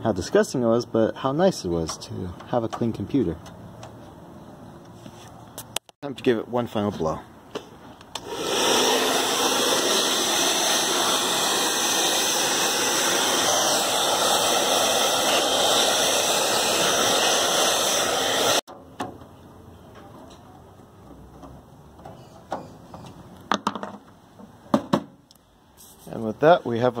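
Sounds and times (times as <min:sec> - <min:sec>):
hair dryer blowing: 0:08.2 - 0:18.7.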